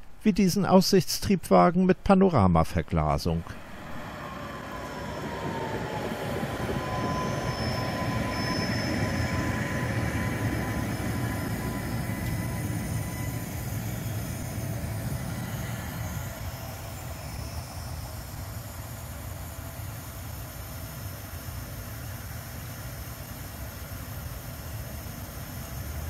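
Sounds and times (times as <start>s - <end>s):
tram wheels rumbling on rails: 3.6s - 16.8s
thin high wheel squeal: 6.5s - 14.4s.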